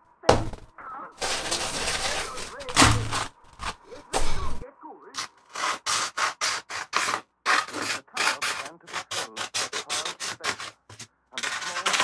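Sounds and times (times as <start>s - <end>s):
sandpaper rubbing on metal: 1.2s - 3.3s, 5.6s - 10.8s.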